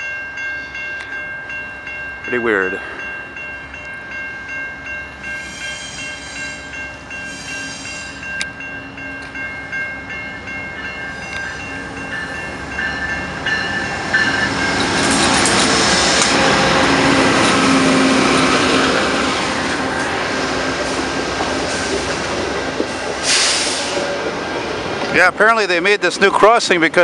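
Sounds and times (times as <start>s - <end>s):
railroad crossing bell ringing: 0.0s - 21.0s, 23.8s - 27.0s
passenger train wheels on rail: 4.8s - 27.0s.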